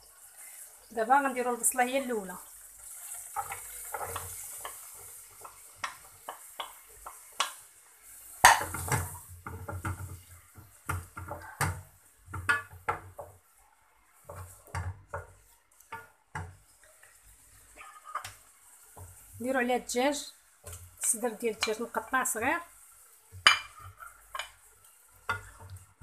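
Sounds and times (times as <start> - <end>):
wooden spoon scraping a saucepan: 14.2 - 19.6, 23.4 - 26.0.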